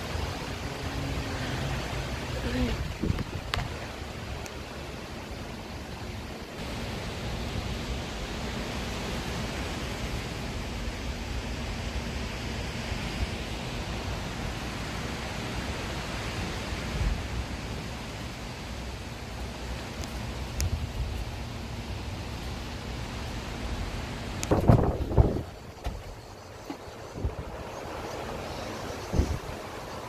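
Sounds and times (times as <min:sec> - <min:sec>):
wind rushing through leaves: 0:00.0 - 0:30.0
wind buffeting the microphone: 0:02.4 - 0:04.6, 0:24.3 - 0:28.0, 0:28.8 - 0:29.9.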